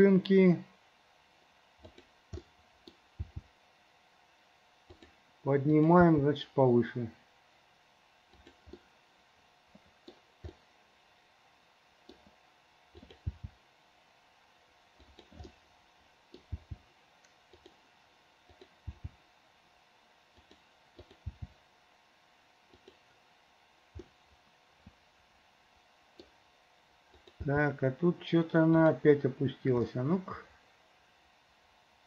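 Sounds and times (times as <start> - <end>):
low background hum: 0.0 - 32.0
mouse and keyboard clicks: 8.3 - 8.8, 13.0 - 13.5, 15.0 - 15.6, 16.3 - 17.8, 20.4 - 21.6, 22.7 - 23.0, 27.1 - 27.4.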